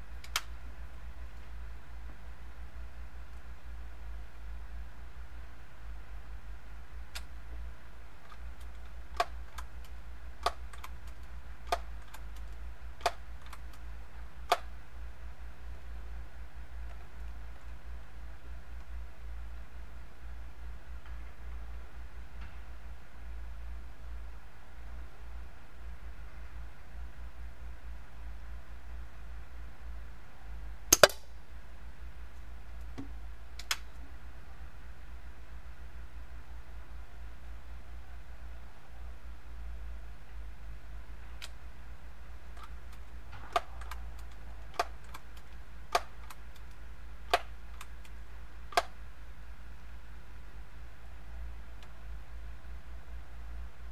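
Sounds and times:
rifle handling clicks: 30.9 - 31.3.

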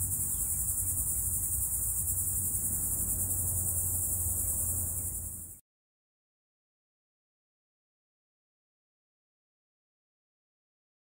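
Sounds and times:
insects trilling: 0.0 - 5.6.

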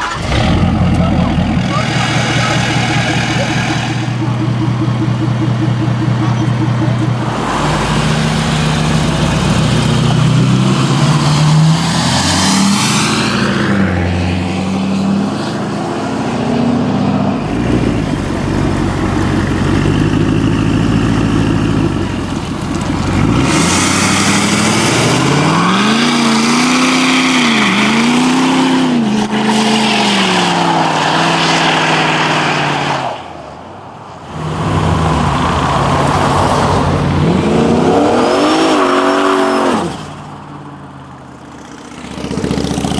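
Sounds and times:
car engine revving: 0.0 - 32.9
car engines running loudly: 0.0 - 42.9.

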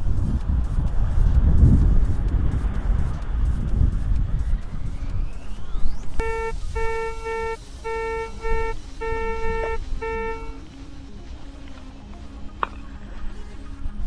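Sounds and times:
wind: 0.0 - 14.0
metal detector beeping: 6.2 - 10.6.

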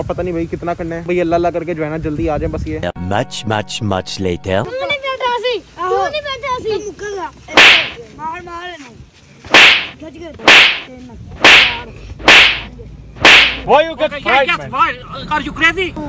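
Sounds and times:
loud sharp smacks: 7.5 - 8.0, 9.5 - 13.7.

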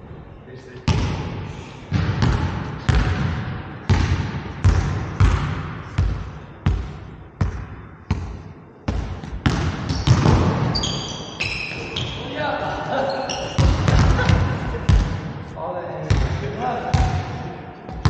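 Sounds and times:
basketball bouncing on hardwood floor: 1.9 - 10.7, 13.6 - 15.2.

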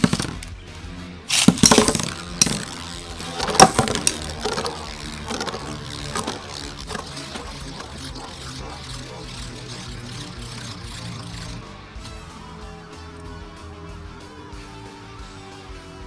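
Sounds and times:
spinning tops clacking together: 0.0 - 0.5, 1.3 - 11.7
spinning tops whirring: 0.0 - 0.5, 1.3 - 14.7.

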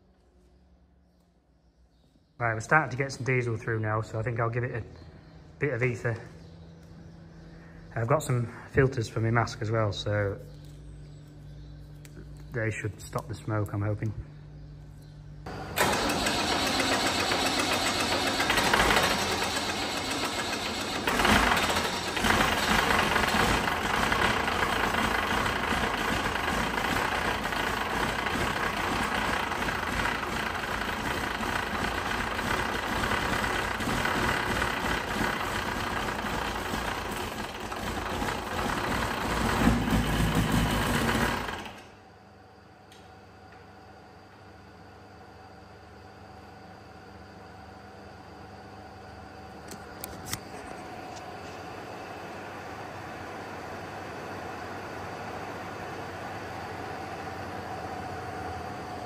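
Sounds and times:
diesel tractor engine cranking and running: 15.5 - 42.0.

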